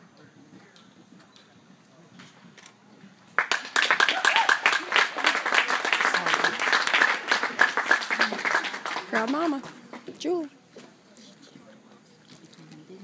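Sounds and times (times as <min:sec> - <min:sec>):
crowd applauding: 0:03.4 - 0:10.1.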